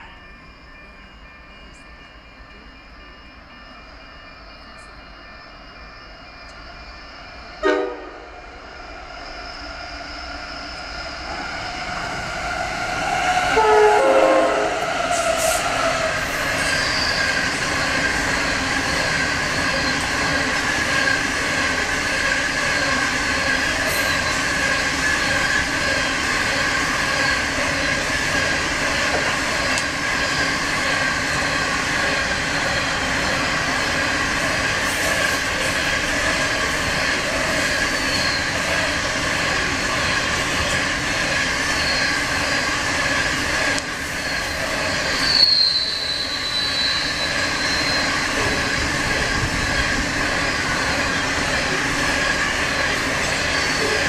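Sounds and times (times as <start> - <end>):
train wagons rumbling past: 0.0 - 54.0
train horn: 7.6 - 8.4, 13.4 - 15.6.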